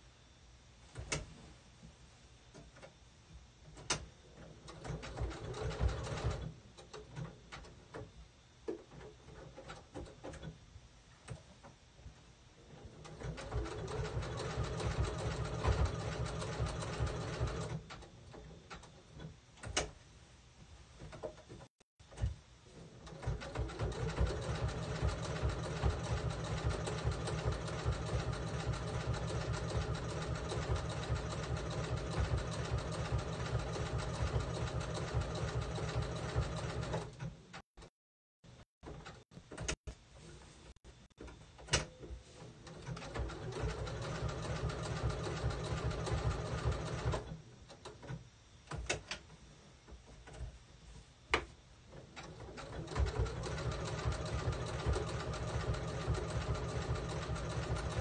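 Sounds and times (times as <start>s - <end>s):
sewing machine stitching: 3.8s - 8.0s, 12.7s - 19.8s, 22.2s - 37.9s, 42.5s - 48.2s, 51.9s - 58.0s.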